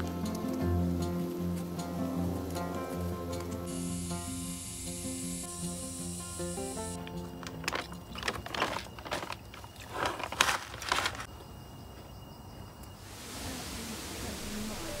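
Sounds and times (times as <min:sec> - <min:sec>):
plastic snack packet crinkling: 0:07.4 - 0:11.3.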